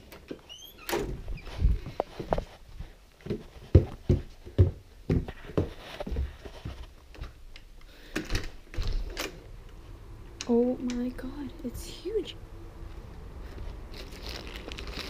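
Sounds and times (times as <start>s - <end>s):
footsteps thudding down stairs: 1.0s - 7.4s.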